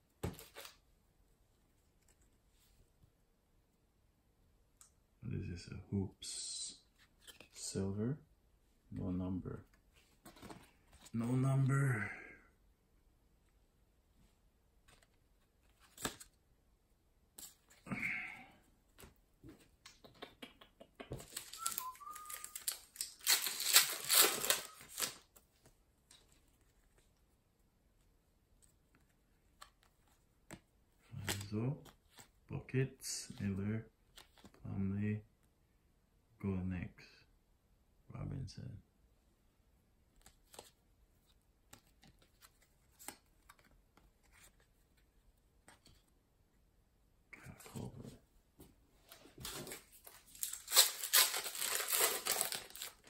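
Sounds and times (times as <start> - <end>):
cards being flipped through: 0.2 - 0.8, 14.8 - 16.4, 17.4 - 17.8, 21.1 - 27.0, 31.2 - 32.3, 34.1 - 34.6, 40.2 - 40.8, 41.7 - 45.1, 49.4 - 53.0
plastic wrapper crinkling: 21.3 - 25.2, 50.0 - 53.0.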